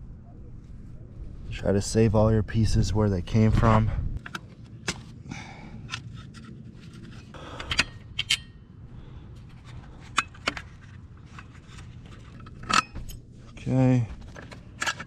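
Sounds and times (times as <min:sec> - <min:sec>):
hardware scraping: 0:05.8 - 0:08.6, 0:09.3 - 0:15.0
metal bolts clicking: 0:07.5 - 0:08.6.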